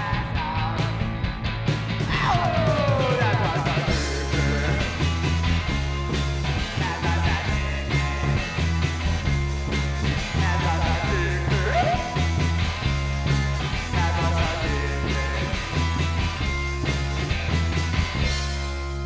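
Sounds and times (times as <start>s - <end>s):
person singing: 0.0s - 1.1s, 2.1s - 5.4s, 6.6s - 8.6s, 10.2s - 12.6s, 13.6s - 16.1s
drum kit: 0.0s - 19.0s
electric bass: 0.0s - 19.0s
electric guitar: 0.0s - 19.0s.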